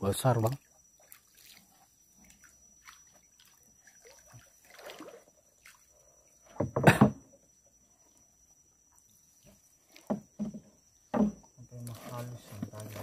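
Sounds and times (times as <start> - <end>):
water splashing and dripping: 0.4 - 5.9.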